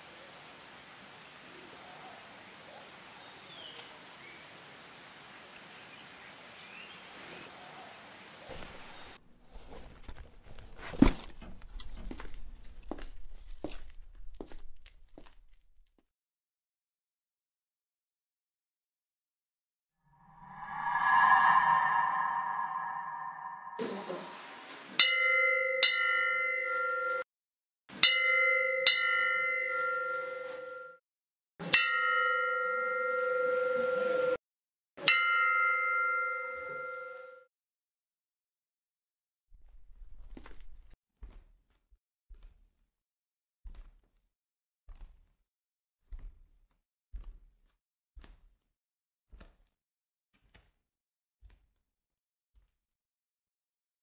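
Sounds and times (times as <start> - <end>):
footsteps on stone steps: 9.7 - 16.0, 40.0 - 42.9, 43.6 - 44.3, 44.9 - 45.4, 46.0 - 48.6
metal bell ringing: 31.8 - 33.1, 35.0 - 37.4.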